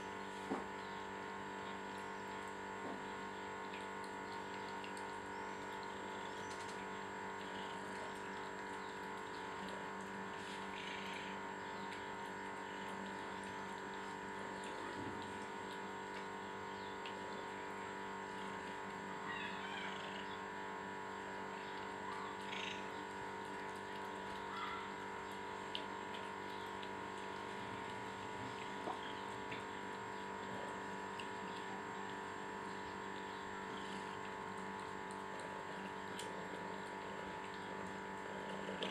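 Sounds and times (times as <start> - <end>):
cats chewing: 0.2 - 38.9.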